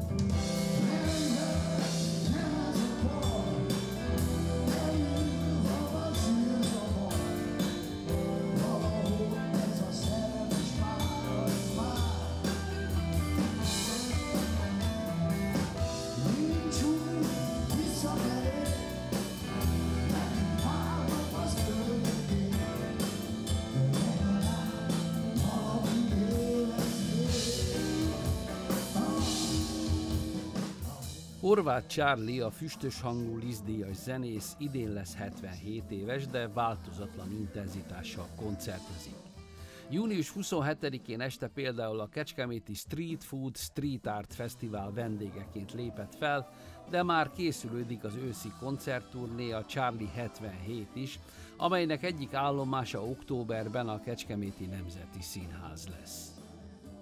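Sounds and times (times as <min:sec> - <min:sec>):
electric guitar: 0:00.0 - 0:31.4
bass guitar: 0:00.0 - 0:39.8
drums: 0:00.0 - 0:41.5, 0:42.8 - 0:57.0
keyboards: 0:00.0 - 0:57.0
man singing: 0:00.0 - 0:57.0.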